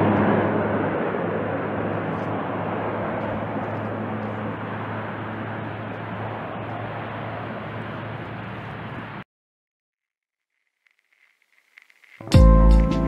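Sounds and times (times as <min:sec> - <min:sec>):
turboprop aircraft engines droning: 0:00.0 - 0:09.2.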